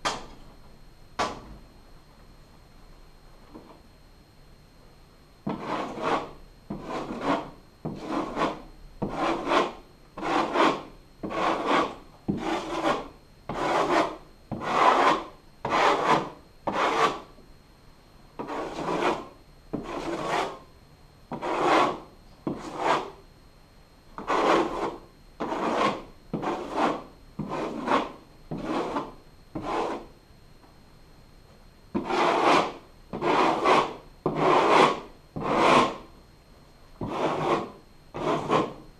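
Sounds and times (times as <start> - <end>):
drywall knife scraping wall: 5.4 - 17.3, 18.4 - 20.7, 21.3 - 23.2, 24.2 - 30.2, 31.9 - 36.1, 37.0 - 38.8.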